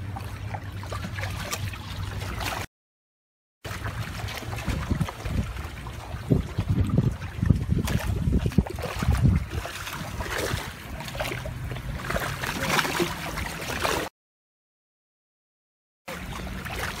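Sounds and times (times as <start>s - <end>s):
water splashing and gurgling: 0.0s - 2.7s, 3.6s - 14.1s, 16.1s - 17.0s
wind buffeting microphone: 4.0s - 12.2s.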